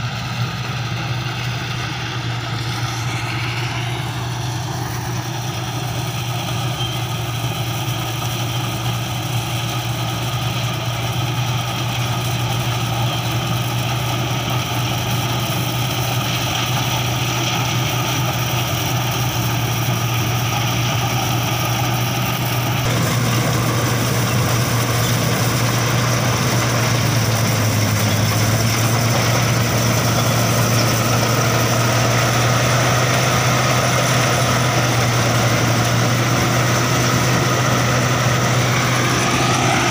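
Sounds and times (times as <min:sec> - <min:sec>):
combine harvester engine hum: 0:00.0 - 0:39.9
cutting and threshing machinery: 0:00.0 - 0:39.9.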